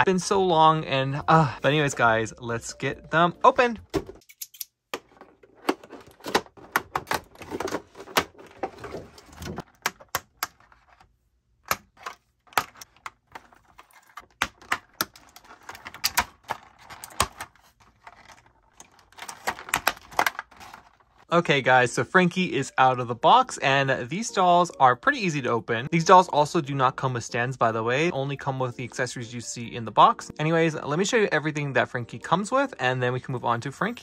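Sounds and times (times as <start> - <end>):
plastic packaging crinkling: 12.8 - 21.2.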